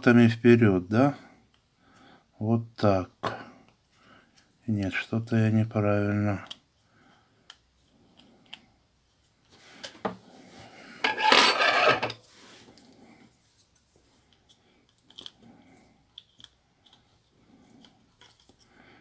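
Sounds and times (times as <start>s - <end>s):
scraping rub: 10.4s - 12.8s.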